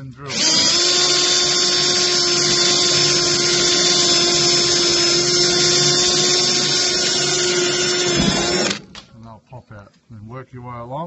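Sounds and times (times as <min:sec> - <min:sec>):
electric drill drilling metal: 0:00.3 - 0:09.0.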